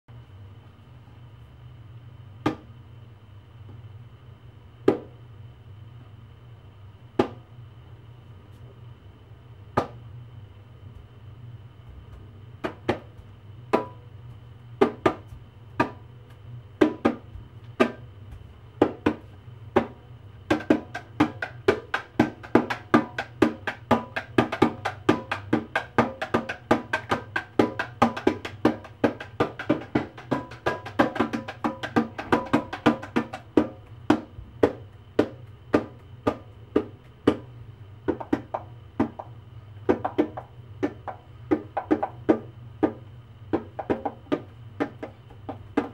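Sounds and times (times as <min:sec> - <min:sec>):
steady low hum: 0:00.1 - 0:45.9
hand drum taps: 0:19.8 - 0:37.4, 0:38.1 - 0:39.3, 0:39.9 - 0:45.9.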